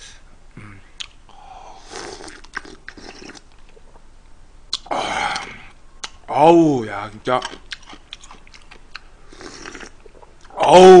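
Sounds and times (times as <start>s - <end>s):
chewing with wet clicks: 2.2s - 4.0s, 7.4s - 10.5s.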